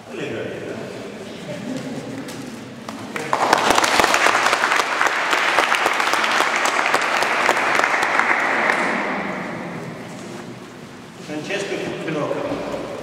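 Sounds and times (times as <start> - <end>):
audience applauding: 2.9 - 10.0.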